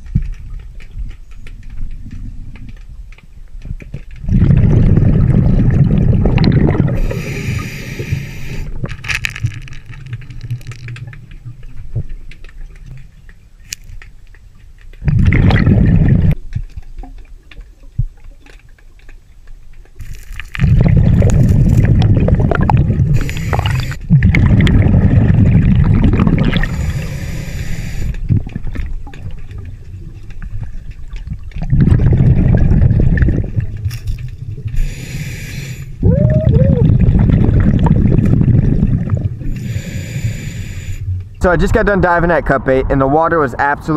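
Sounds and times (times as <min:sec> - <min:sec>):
exhaled air bubbling underwater: 0:00.0 - 0:13.7, 0:14.3 - 0:43.9
regulator inhale hiss: 0:07.0 - 0:08.7, 0:23.2 - 0:24.0, 0:26.6 - 0:28.2, 0:34.8 - 0:36.0, 0:39.5 - 0:41.1.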